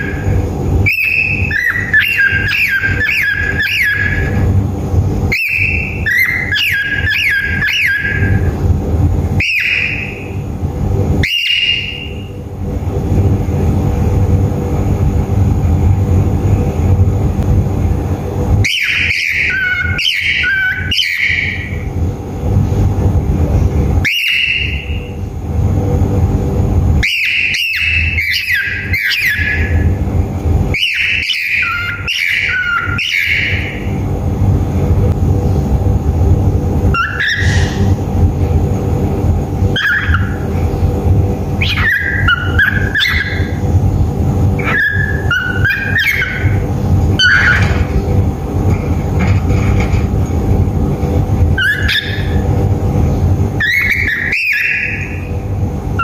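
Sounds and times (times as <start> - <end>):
cockatiel whistled chirps: 0.0 - 4.4, 5.3 - 8.5, 9.4 - 10.4, 11.2 - 12.3, 18.6 - 21.8, 24.0 - 25.2, 27.0 - 29.8, 30.7 - 33.8, 36.9 - 37.9, 39.7 - 40.5, 41.6 - 43.6, 44.6 - 46.6, 51.6 - 52.4, 53.6 - 55.2
steady low hum: 0.0 - 56.0.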